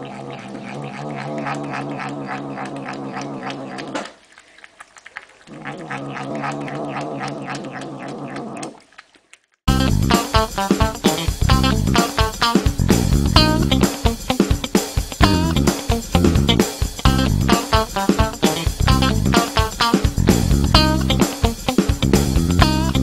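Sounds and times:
chewing clicks: 0:00.3 - 0:09.6
loud music with guitar and drums: 0:09.7 - 0:23.0.

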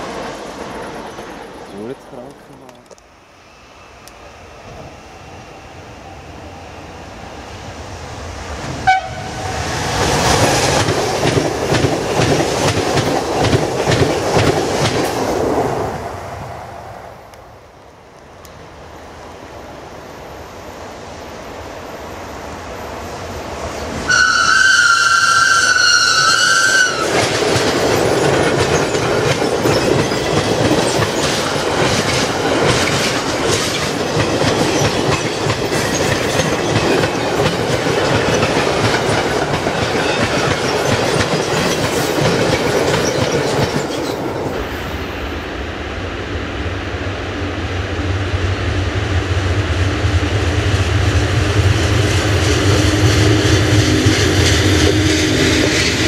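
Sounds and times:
electric locomotives humming: 0:00.0 - 0:14.8, 0:15.4 - 0:56.0
train horn: 0:08.8 - 0:09.6, 0:24.1 - 0:27.1
freight train wheels clattering: 0:09.7 - 0:15.4, 0:25.7 - 0:44.6, 0:51.6 - 0:56.0.

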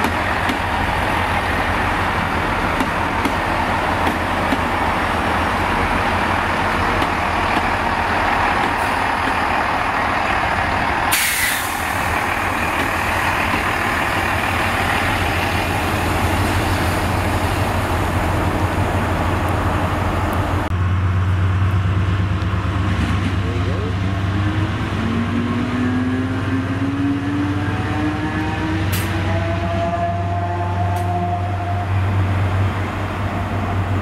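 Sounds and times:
train rolling over rails: 0:00.0 - 0:25.8
diesel engine drone: 0:00.0 - 0:34.0
sharp hiss: 0:11.1 - 0:12.2.

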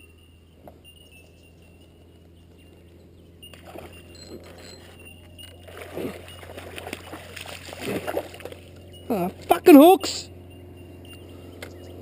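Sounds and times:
water splashing: 0:05.5 - 0:08.7.

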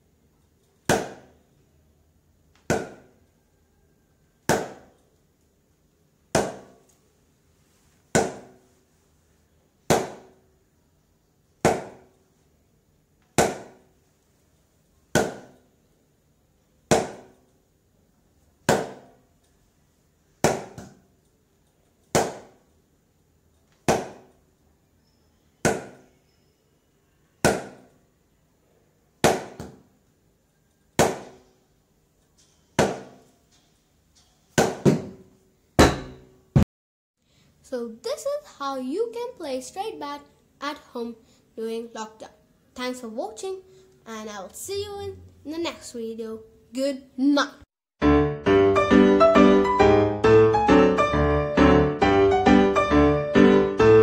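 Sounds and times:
cricket bat striking ball: 0:00.9 - 0:01.3, 0:02.7 - 0:03.1, 0:04.5 - 0:04.9, 0:06.3 - 0:06.8, 0:08.1 - 0:08.6, 0:09.9 - 0:10.4, 0:11.6 - 0:12.0, 0:13.4 - 0:13.8, 0:15.1 - 0:15.6, 0:16.9 - 0:17.4, 0:18.7 - 0:19.1, 0:20.4 - 0:21.0, 0:22.1 - 0:22.6, 0:23.8 - 0:24.3, 0:25.6 - 0:26.0, 0:27.4 - 0:27.9, 0:29.2 - 0:29.8, 0:31.0 - 0:31.4, 0:32.8 - 0:33.2, 0:34.6 - 0:35.2, 0:35.8 - 0:36.3.

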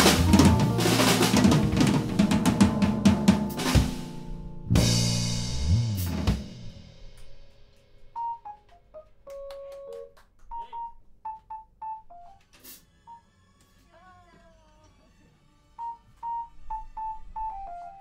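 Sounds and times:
short instrument notes: 0:00.0 - 0:07.2
drum kit hits: 0:00.0 - 0:08.5.

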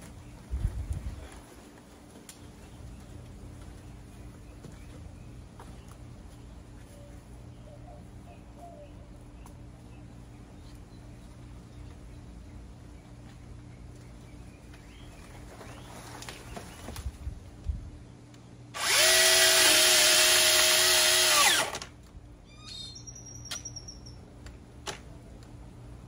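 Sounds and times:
mini chainsaw motor whining: 0:18.8 - 0:21.9.

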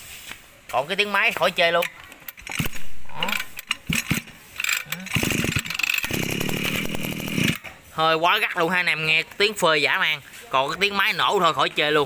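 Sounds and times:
recoil starter pull: 0:02.3 - 0:07.7
small engine turning over: 0:02.3 - 0:07.7.

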